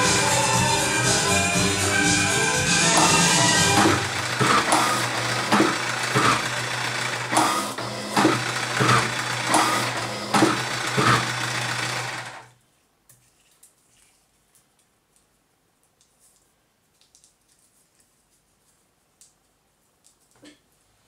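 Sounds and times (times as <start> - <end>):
machine motor hum: 0.0 - 12.5
piston strokes: 2.6 - 12.2.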